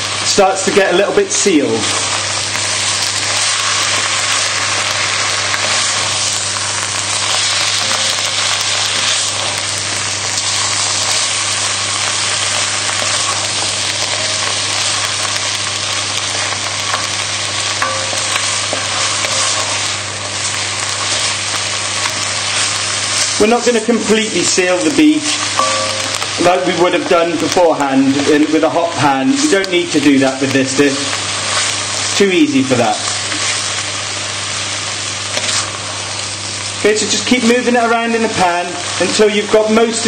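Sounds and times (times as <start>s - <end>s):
meat and vegetables sizzling: 0.0s - 40.0s
steady low hum: 1.8s - 28.3s.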